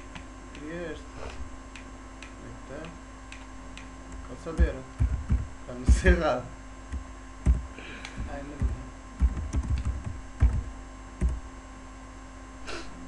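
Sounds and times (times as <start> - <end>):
steady electrical hum: 0.0 - 13.0
keyboard key clicks: 6.9 - 10.6.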